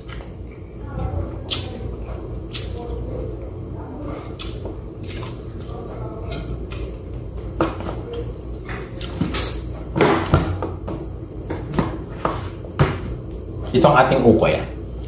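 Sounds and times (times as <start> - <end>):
steady low hum: 0.0 - 15.0
chewing and mouth clicks: 2.5 - 3.0, 4.3 - 7.0, 8.9 - 9.5.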